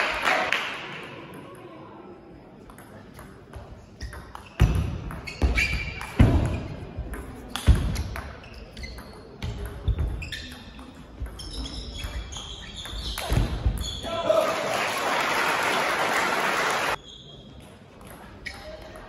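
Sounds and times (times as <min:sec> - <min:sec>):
applause: 0:00.0 - 0:01.0, 0:14.4 - 0:17.0
shoes squeaking on floor: 0:04.0 - 0:06.8, 0:08.0 - 0:14.1
person shouting: 0:14.1 - 0:14.6.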